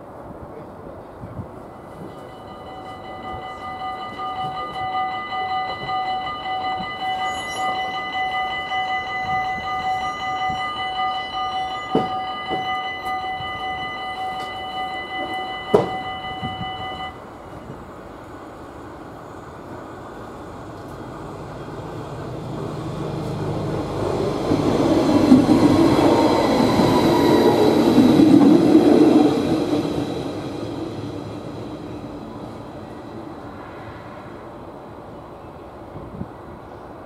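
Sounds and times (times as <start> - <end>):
level crossing warning bell: 1.6 - 17.8.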